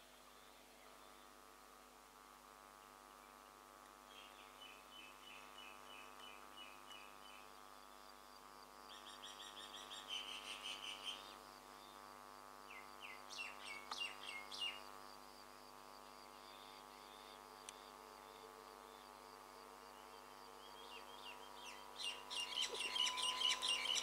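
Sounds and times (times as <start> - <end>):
faint steady hum: 0.0 - 24.0
small birds chirping: 20.7 - 24.0.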